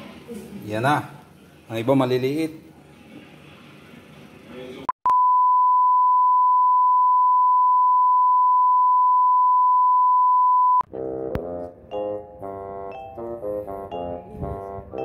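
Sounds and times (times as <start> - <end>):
instrumental music with bell-like notes: 12.9 - 14.4.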